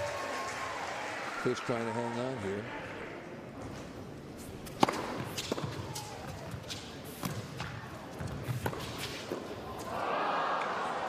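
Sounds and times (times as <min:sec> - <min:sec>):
tennis ball hits and bounces: 0:04.6 - 0:09.5.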